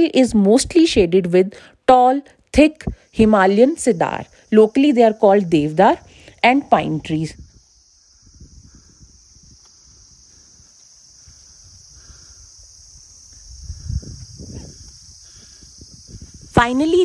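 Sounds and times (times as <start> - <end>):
insects chirring: 0.0 - 17.0
wind rumble on microphone: 5.9 - 17.0.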